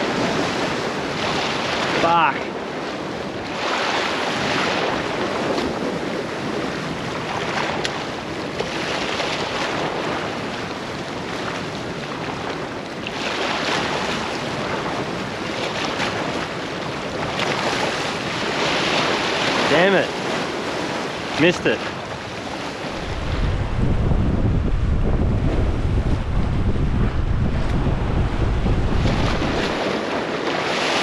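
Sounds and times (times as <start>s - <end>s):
waves splashing on rocks: 0.0s - 2.8s, 13.0s - 31.0s.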